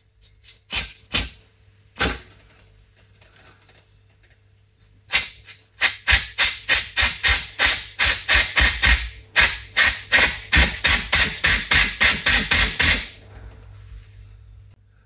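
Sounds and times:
compressed air hissing in pulses: 5.8s - 13.4s.

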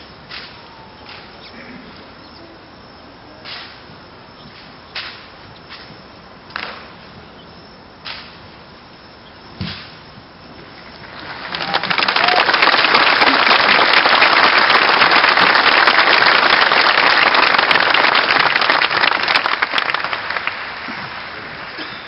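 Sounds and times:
audience applauding: 10.9s - 22.0s.

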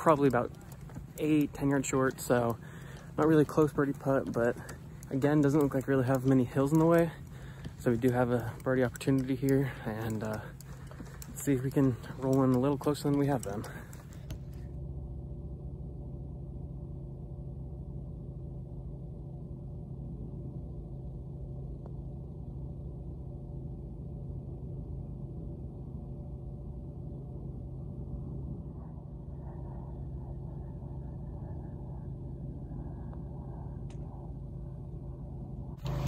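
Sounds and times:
water pump humming: 35.8s - 36.0s.

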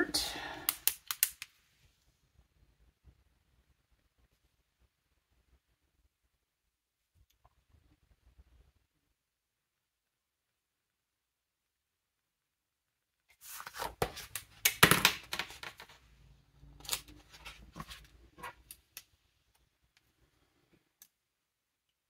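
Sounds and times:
sharp clicks and taps: 0.7s - 1.5s
paper rustling: 13.4s - 16.0s.

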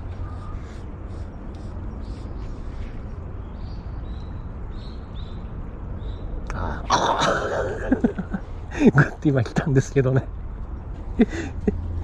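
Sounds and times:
small bird chirping: 0.0s - 6.4s
low outdoor rumble: 0.0s - 12.0s.

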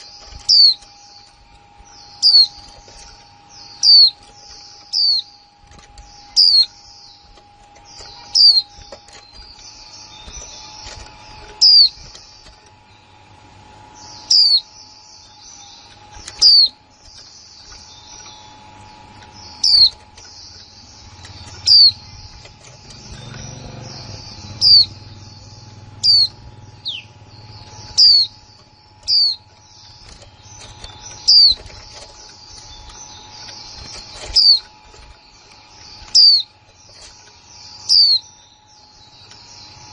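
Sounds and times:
faint steady hum: 0.0s - 39.9s
soft bird twittering: 0.0s - 39.9s
bird sharp chip calls: 19.3s - 37.2s.

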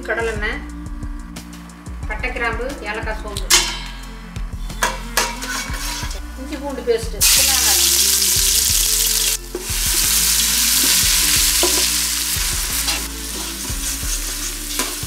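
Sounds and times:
spoon stirring in pot: 4.8s - 6.2s
paste sizzling in hot oil: 7.2s - 15.0s.

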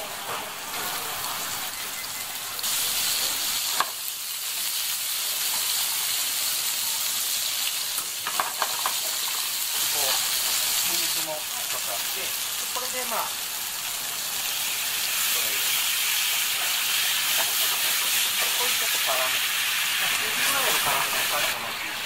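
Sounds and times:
meat sizzling in a frying pan: 0.0s - 22.0s.

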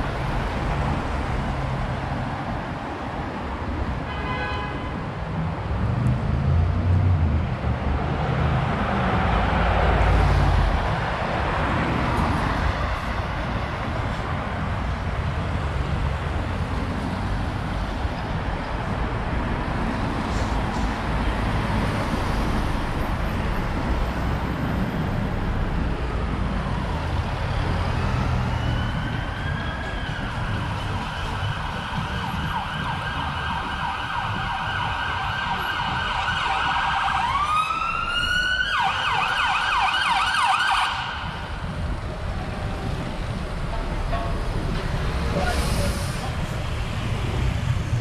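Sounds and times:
city traffic rumble: 0.0s - 48.0s
police siren: 26.5s - 41.7s.

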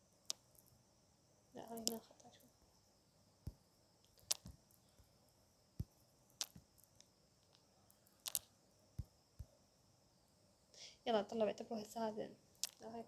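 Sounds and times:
stylus tapping on tablet screen: 3.4s - 5.1s.

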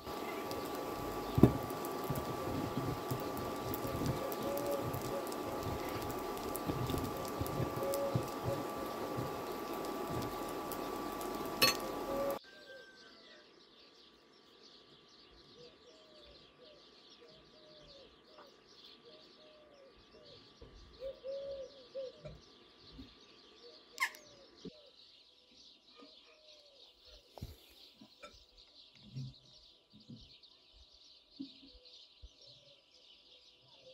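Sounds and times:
birds calling low: 0.0s - 13.0s, 14.8s - 32.9s
steady humming noise: 0.0s - 25.1s.

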